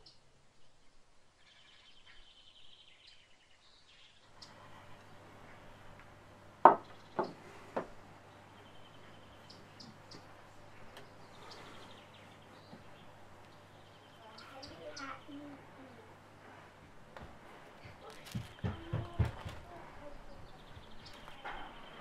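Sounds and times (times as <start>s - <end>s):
faint bird chirps and trills: 0.0s - 6.0s, 6.7s - 16.3s, 17.8s - 22.0s
low room hum: 0.0s - 22.0s.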